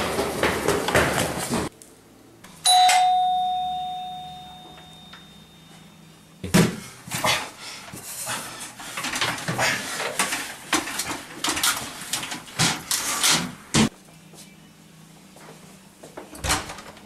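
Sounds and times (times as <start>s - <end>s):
doorbell chime: 2.6s - 6.0s.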